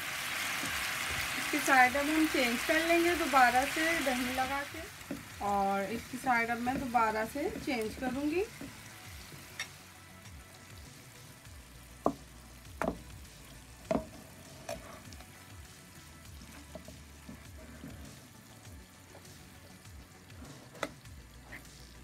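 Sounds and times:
chicken sizzling in a pan: 0:00.0 - 0:22.0
metal spatula scraping a pan: 0:14.0 - 0:15.2, 0:16.4 - 0:18.3, 0:20.3 - 0:21.9.

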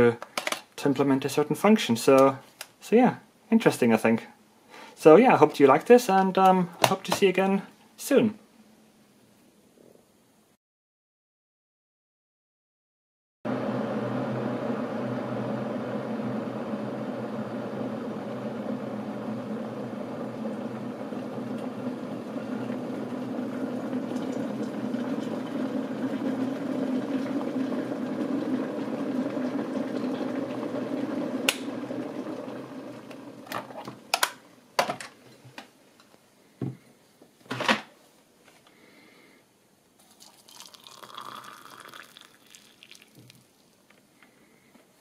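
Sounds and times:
kettle boiling water: 0:13.5 - 0:34.9, 0:40.0 - 0:44.3.

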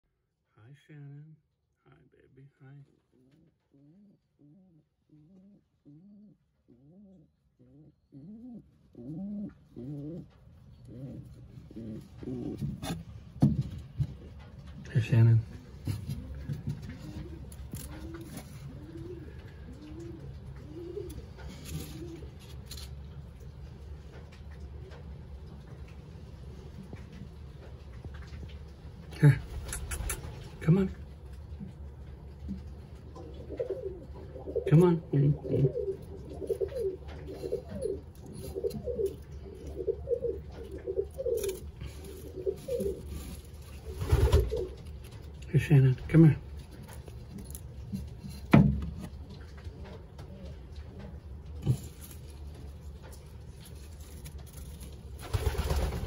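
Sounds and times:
pigeon cooing: 0:03.1 - 0:14.8, 0:15.5 - 0:23.0, 0:29.4 - 0:30.6, 0:32.5 - 0:45.4, 0:49.2 - 0:52.5.

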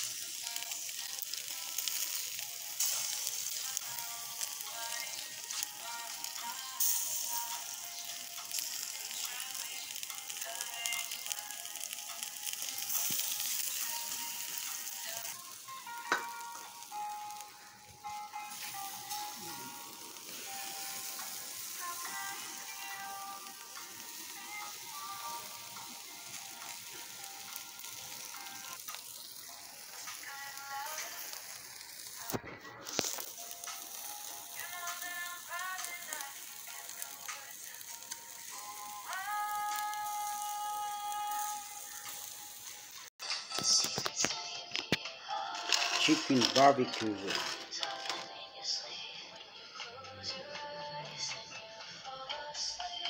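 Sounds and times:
meat sizzling on a grill: 0:00.0 - 0:43.2, 0:45.1 - 0:48.5
music melody: 0:03.7 - 0:31.2.

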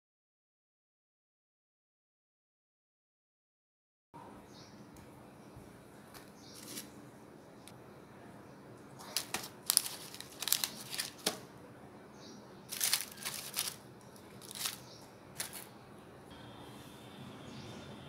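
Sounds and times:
baking paper crinkling: 0:06.1 - 0:07.0, 0:09.0 - 0:11.5, 0:12.7 - 0:15.7.

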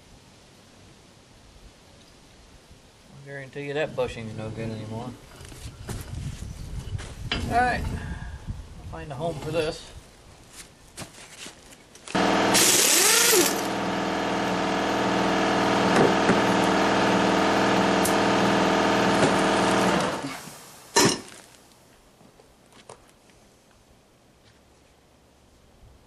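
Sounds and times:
pneumatic impact wrench: 0:12.1 - 0:21.2.

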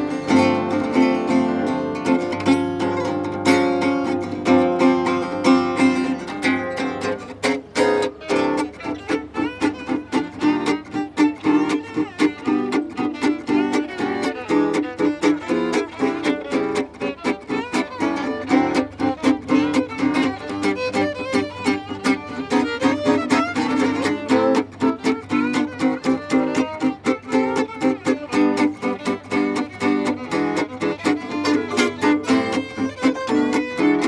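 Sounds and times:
acoustic guitar strumming chords: 0:00.0 - 0:34.0
fast violin melody: 0:02.2 - 0:34.0.

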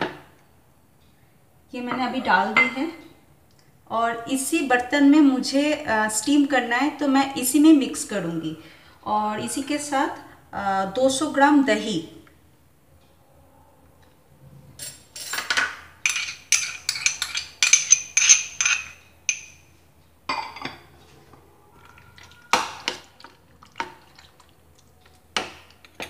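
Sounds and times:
metal spoon clinking on bowls: 0:14.8 - 0:19.7, 0:20.3 - 0:20.9.

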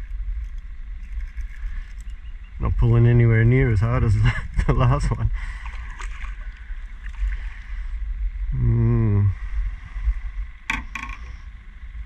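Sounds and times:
low rumble: 0:00.0 - 0:12.0
person humming: 0:08.5 - 0:09.4.

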